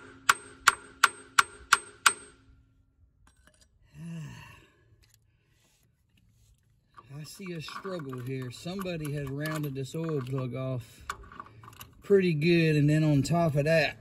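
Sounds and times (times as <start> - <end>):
person sighing: 3.8 - 5.0.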